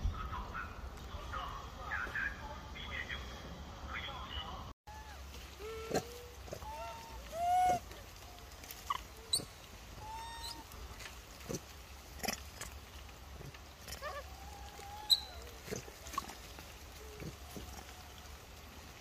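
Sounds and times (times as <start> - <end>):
baby monkey coo calls: 4.9 - 10.8, 13.8 - 18.0.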